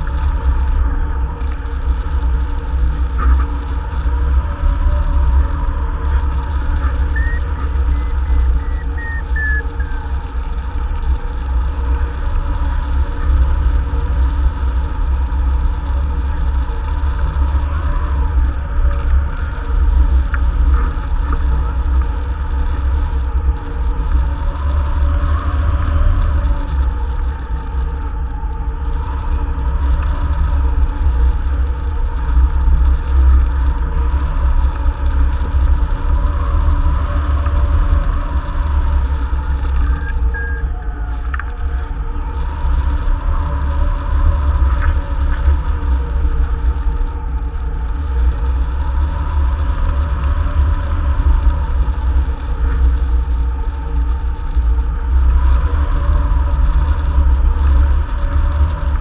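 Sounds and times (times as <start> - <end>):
faint steady whistle: 6.8 - 10.1, 39.8 - 41.4.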